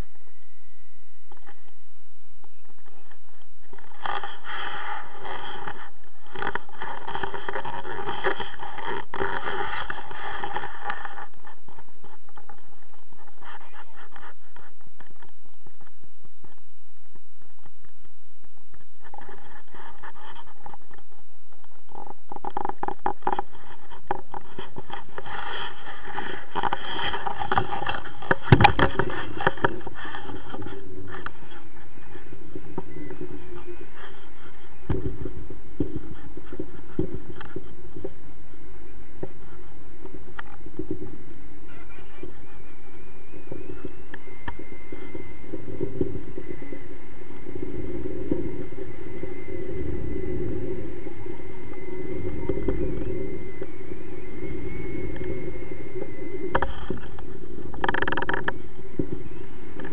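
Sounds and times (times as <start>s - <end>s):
wind buffeting microphone: 0.0s - 59.9s
clothing rustling and scraping: 2.8s - 16.6s, 18.8s - 38.2s.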